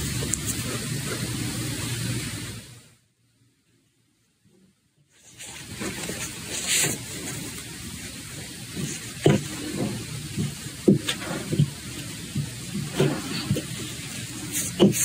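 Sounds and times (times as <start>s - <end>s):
cloth rustling: 5.1s - 15.0s.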